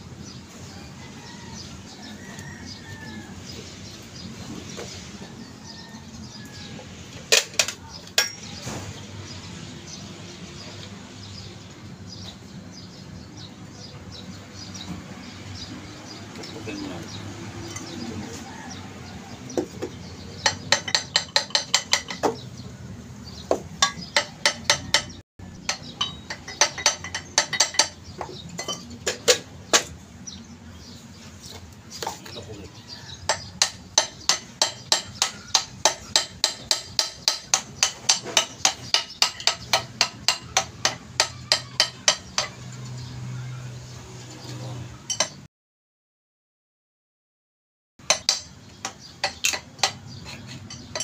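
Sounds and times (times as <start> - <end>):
hammer tapping metal: 7.3 - 8.5, 19.6 - 22.4, 23.5 - 29.9, 33.3 - 42.8, 48.0 - 51.0.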